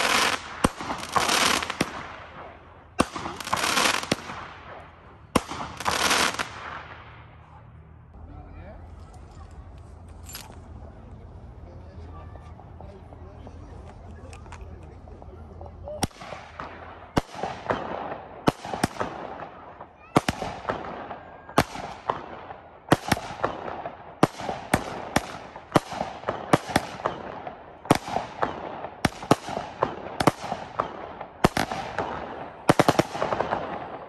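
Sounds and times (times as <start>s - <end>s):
fireworks exploding: 0.0s - 7.4s, 16.0s - 34.0s.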